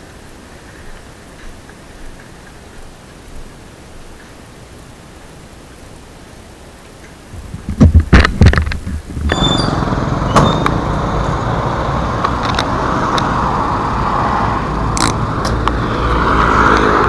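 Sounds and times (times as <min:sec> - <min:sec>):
highway traffic noise: 0:07.0 - 0:17.0.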